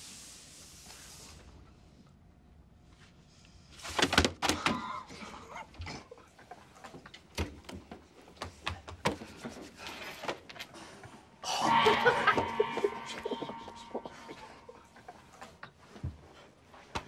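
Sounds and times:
sound effect sting: 11.4 - 14.8.

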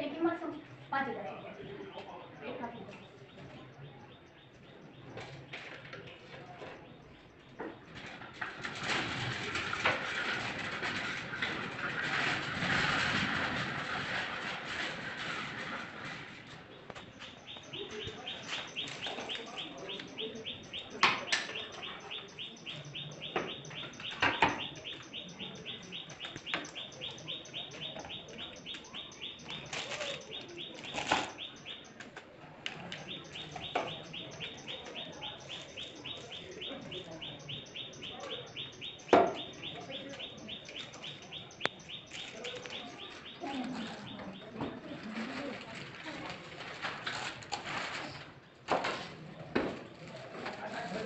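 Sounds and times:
rapid high-pitched chirping: 17.0 - 32.0, 32.9 - 44.5
sharp knocks and clatters: 23.3 - 24.8.

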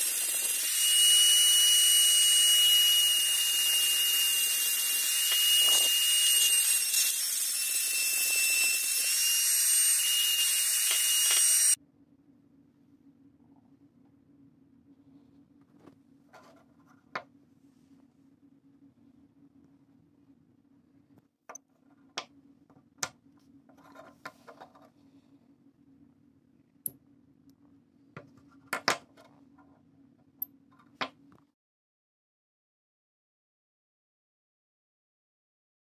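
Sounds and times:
rotary tool high whine: 0.0 - 11.8
faint low hum: 11.8 - 31.5.

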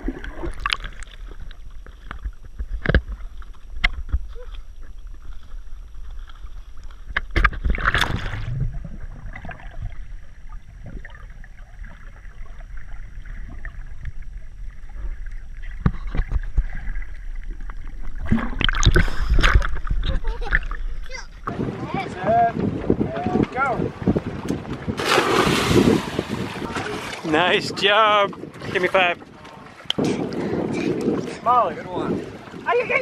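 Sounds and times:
underwater sloshing rumble: 0.0 - 33.0
rush of bubbles: 18.2 - 19.7, 25.0 - 27.2.

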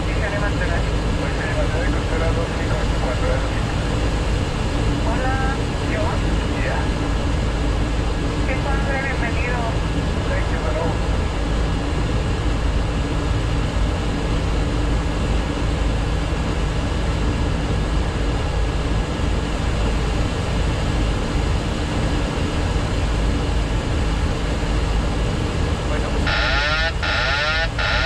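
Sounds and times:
cockpit air rush and hum: 23.0 - 28.0
faint steady tones: 25.9 - 28.0.

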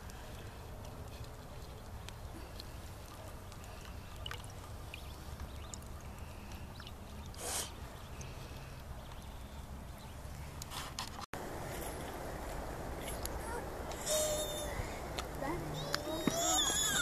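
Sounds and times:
short hiss: 7.4 - 7.8
low steady rumble: 11.4 - 16.2.

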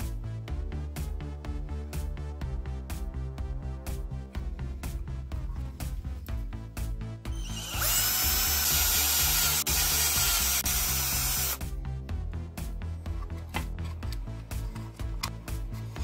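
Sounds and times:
background music: 0.0 - 16.0
power drill boring plastic: 7.4 - 11.6.

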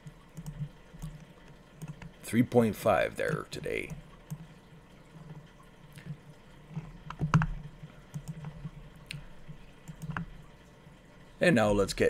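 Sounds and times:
small clicks: 0.0 - 2.2, 3.2 - 4.6, 5.2 - 10.5
low hum: 0.0 - 12.0.

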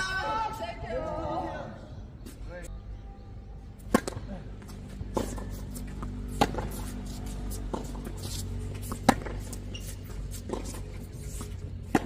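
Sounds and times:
tennis ball bounces: 3.8 - 12.0.

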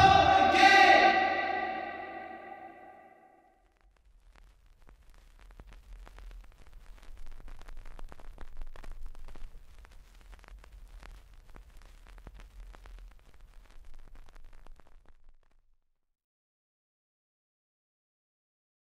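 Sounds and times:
crackling static hiss: 3.6 - 16.0.

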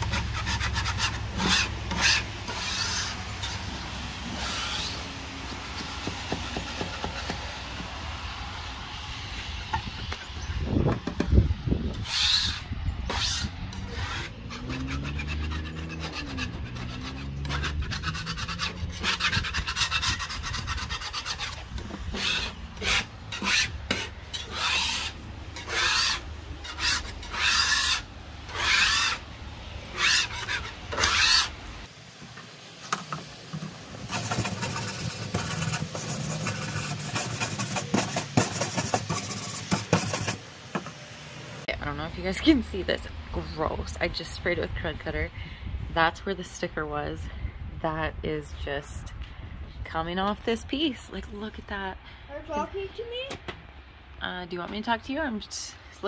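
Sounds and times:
hand scraper scraping wood: 0.0 - 8.0, 12.0 - 29.2, 29.9 - 31.5, 32.9 - 40.9.

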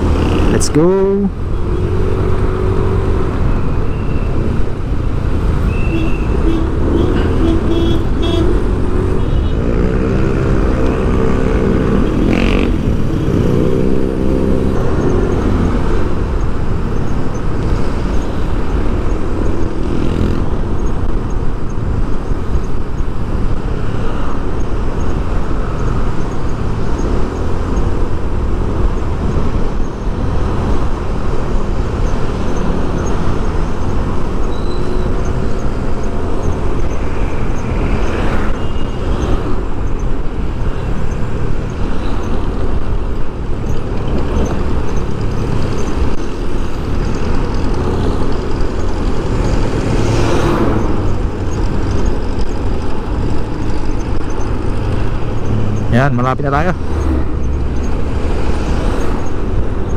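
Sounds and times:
road traffic rumble: 0.0 - 59.9
vehicle engine accelerating: 43.6 - 59.9.

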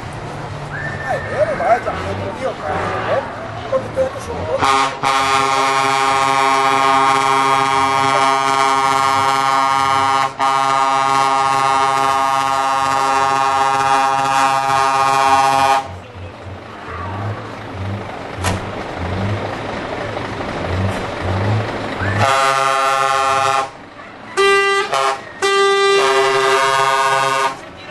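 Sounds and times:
truck air horn blaring: 0.9 - 3.4, 4.5 - 16.2, 22.0 - 23.8, 24.4 - 27.6.

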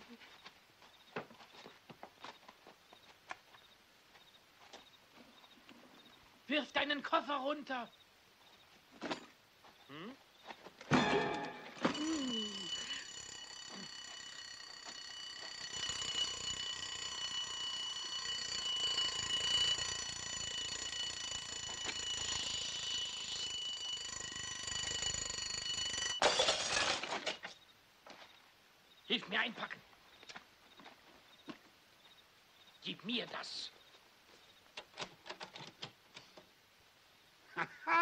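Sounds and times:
alarm clock bell ringing: 10.9 - 26.8.

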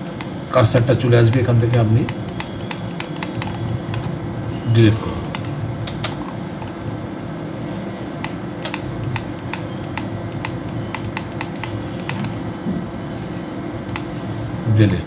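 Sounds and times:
computer mouse clicking: 0.0 - 0.4, 1.3 - 4.1, 5.2 - 6.8, 8.2 - 12.5, 13.9 - 14.1
low room hum: 0.0 - 15.0.

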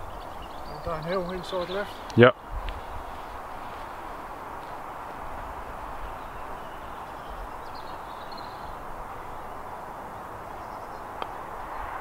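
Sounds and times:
faint bird chirps: 6.1 - 9.6.

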